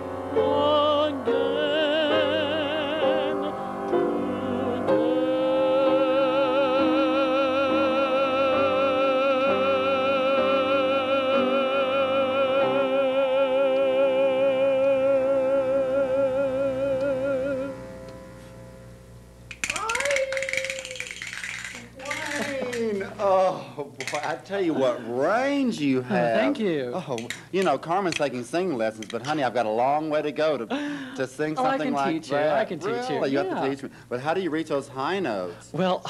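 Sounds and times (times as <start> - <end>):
steady musical accompaniment: 0.0 - 22.8
male opera singer singing: 0.3 - 17.8.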